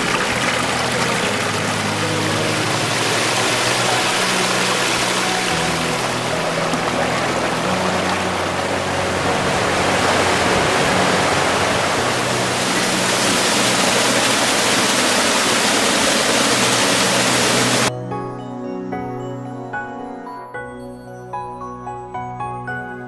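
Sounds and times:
creek tumbling over rocks: 0:00.0 - 0:17.9.

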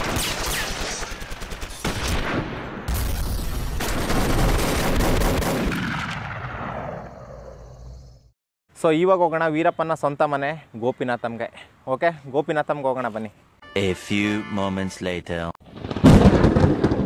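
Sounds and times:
rapid automatic gunfire: 0:00.0 - 0:02.3, 0:03.8 - 0:06.0.

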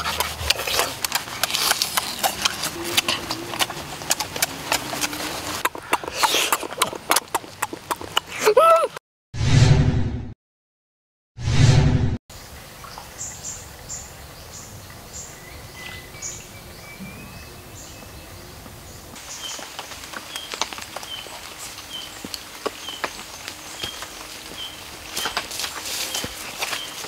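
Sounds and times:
birds chirping high: 0:12.4 - 0:27.0.

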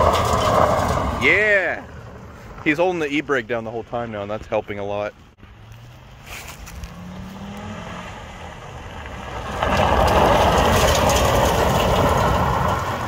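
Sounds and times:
tyres sliding on gravel: 0:00.0 - 0:13.0
car engine rising in pitch: 0:05.4 - 0:13.0.

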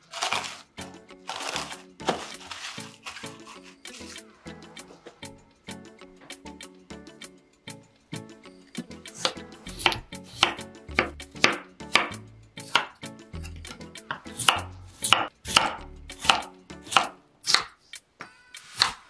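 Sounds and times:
knife chopping on wooden board: 0:09.2 - 0:13.0, 0:14.1 - 0:17.8.

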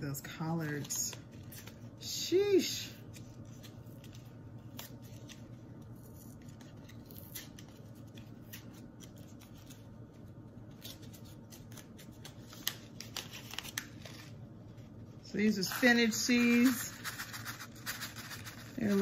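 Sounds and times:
low steady hum: 0:00.0 - 0:19.0
seed packets and trays rustling: 0:15.3 - 0:19.0.

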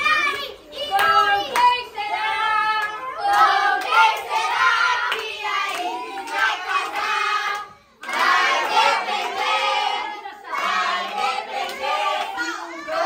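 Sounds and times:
children and adults singing: 0:00.0 - 0:13.0
hands clapping: 0:00.3 - 0:01.8, 0:02.8 - 0:09.4, 0:11.1 - 0:12.6.

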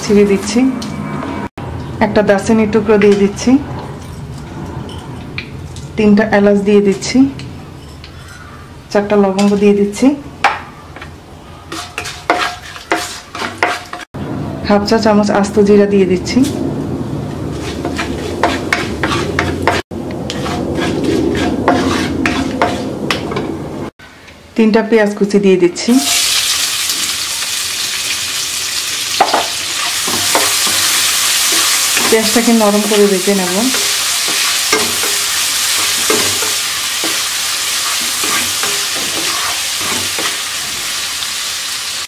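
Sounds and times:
wooden spatula scraping spices: 0:11.7 - 0:14.0, 0:17.5 - 0:22.9, 0:29.8 - 0:40.4
hot oil sizzling: 0:26.0 - 0:42.0.

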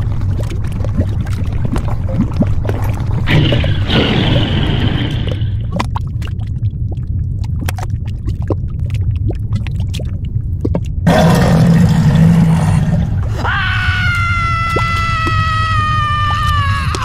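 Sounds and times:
low fire rumble with crackles: 0:00.0 - 0:17.0
shrill creature cry: 0:13.3 - 0:17.0.

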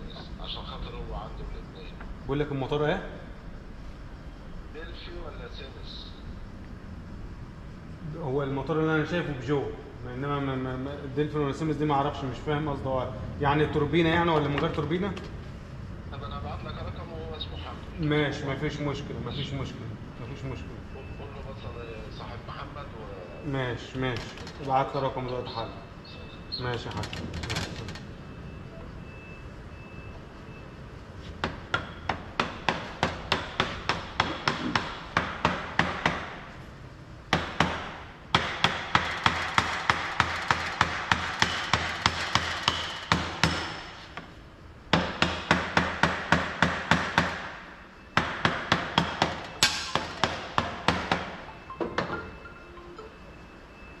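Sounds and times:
rapid hammer blows on metal: 0:37.3 - 0:43.9.

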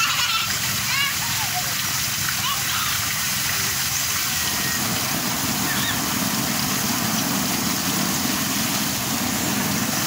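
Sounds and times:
constant hiss: 0:00.0 - 0:10.0
machine running with low drone: 0:04.3 - 0:10.0.

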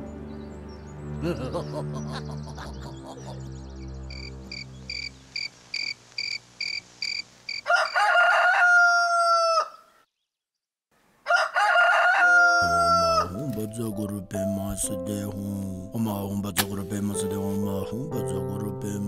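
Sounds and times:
cricket chirping: 0:04.1 - 0:07.7
rooster crowing: 0:06.7 - 0:10.0, 0:11.2 - 0:13.3.

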